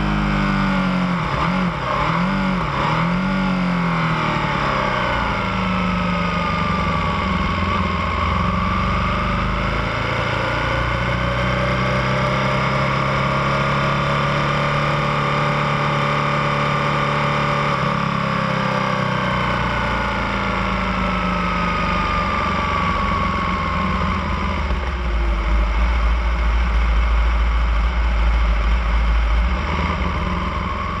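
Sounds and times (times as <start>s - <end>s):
motorcycle engine at low speed: 0.0s - 31.0s
deep low rumble: 22.1s - 31.0s.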